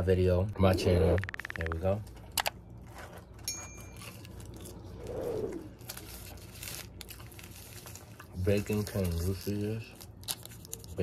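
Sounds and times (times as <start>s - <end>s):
paper wrapper rustling and crinkling: 5.7s - 11.0s.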